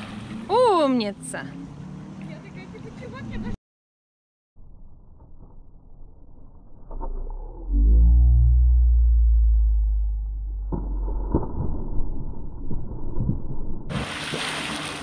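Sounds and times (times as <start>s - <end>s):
slowed deep rumble: 4.6s - 14.0s.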